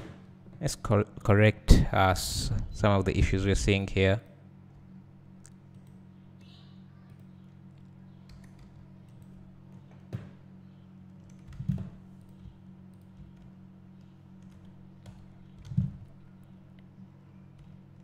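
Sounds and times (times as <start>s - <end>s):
low electrical hum: 0.0s - 18.0s.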